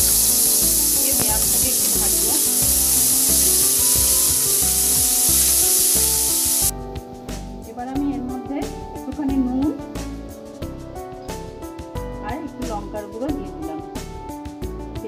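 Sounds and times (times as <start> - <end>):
onions sizzling in a pan: 0.0 - 6.7.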